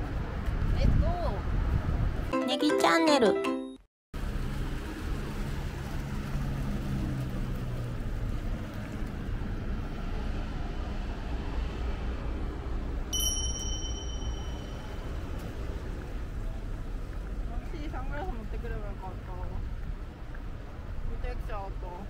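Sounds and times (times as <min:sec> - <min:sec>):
vehicle rumble: 0:04.2 - 0:22.0
bright ding: 0:13.2 - 0:15.5.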